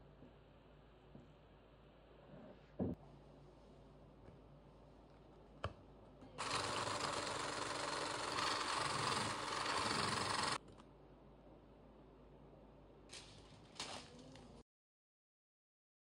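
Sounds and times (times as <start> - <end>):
small electric kitchen motor running: 6.4 - 10.6.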